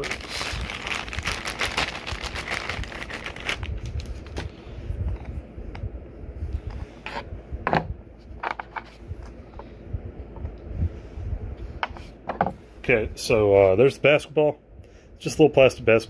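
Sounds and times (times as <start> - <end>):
plastic bags crinkling: 0.0 - 4.5.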